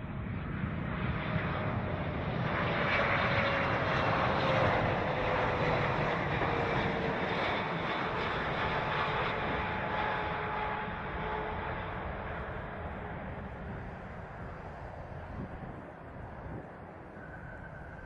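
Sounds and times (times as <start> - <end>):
jet engine whine: 0.0 - 18.0.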